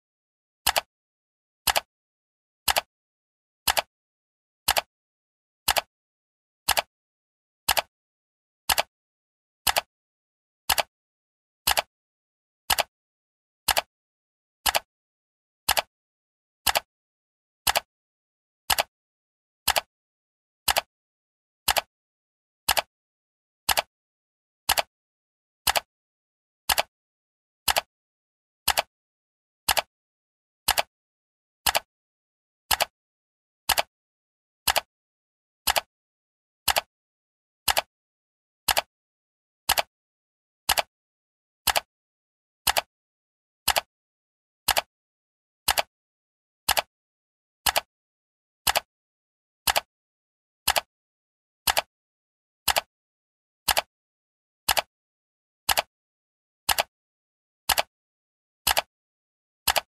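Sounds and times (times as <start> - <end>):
clock ticking: 49.7 - 49.9, 59.7 - 59.9.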